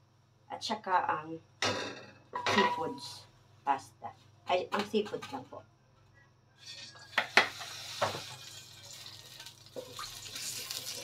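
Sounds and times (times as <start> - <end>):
oil sizzling in a wok: 6.6 - 11.0.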